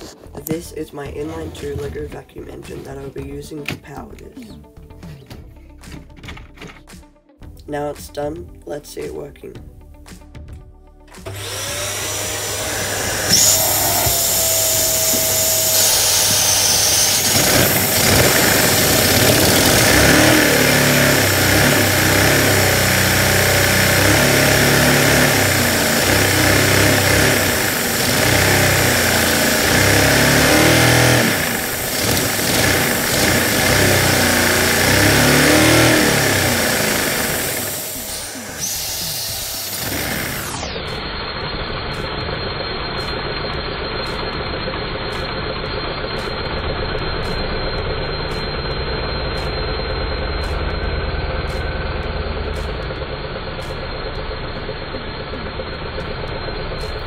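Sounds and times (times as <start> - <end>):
toy engine clattering: 13.3 - 57.0.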